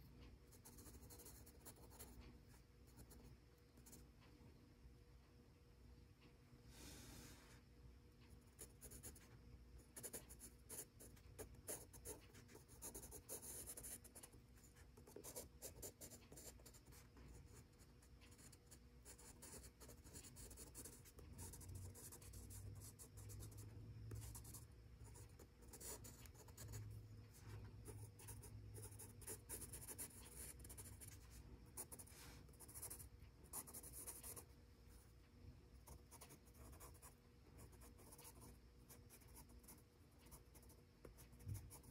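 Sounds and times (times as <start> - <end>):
pencil scratching on paper: 0.6 - 2.2, 10.0 - 26.8, 27.8 - 34.4, 35.9 - 41.9.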